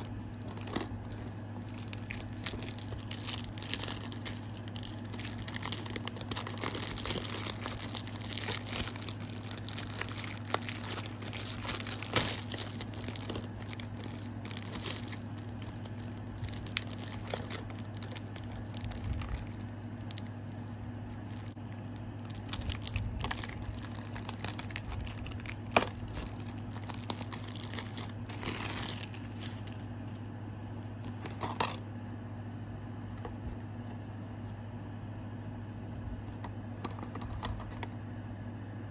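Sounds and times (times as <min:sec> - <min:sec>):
plastic wrapping crinkling: 0:00.0 - 0:30.2
steady low hum: 0:00.0 - 0:38.9.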